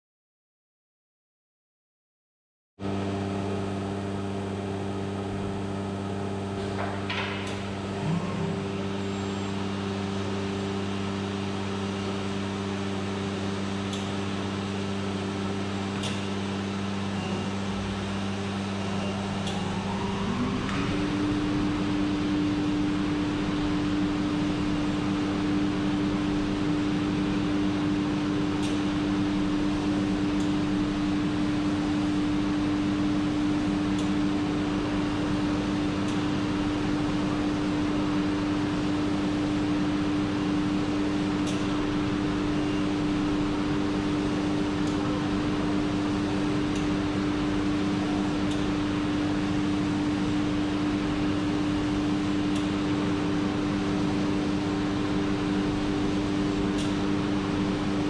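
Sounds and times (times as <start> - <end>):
machine humming: 2.8 - 58.0
router spindle whine: 7.3 - 25.6.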